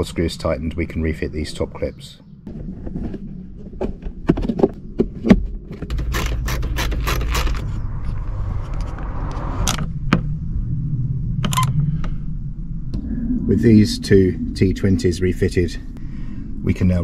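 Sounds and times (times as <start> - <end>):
screwdriver turning screws: 5.9 - 7.7.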